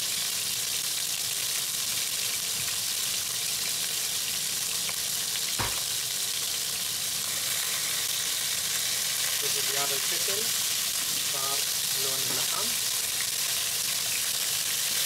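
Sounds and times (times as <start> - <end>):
meat sizzling in a pan: 0.0 - 15.0
sharp knock: 5.6 - 5.9.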